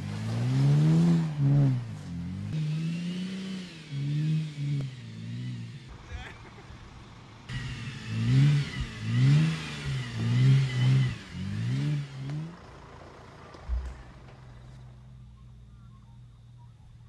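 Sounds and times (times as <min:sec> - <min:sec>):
engine revving hard: 0:00.0 - 0:06.0, 0:07.5 - 0:12.6
wheels spinning in mud: 0:00.0 - 0:17.0
thump: 0:13.6 - 0:14.4.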